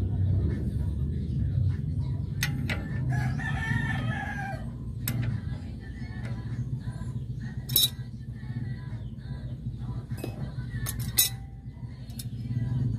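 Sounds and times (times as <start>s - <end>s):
steady low hum: 0.0s - 12.9s
rooster crowing: 3.0s - 4.8s
metal clinks: 7.7s - 8.1s, 10.2s - 12.3s.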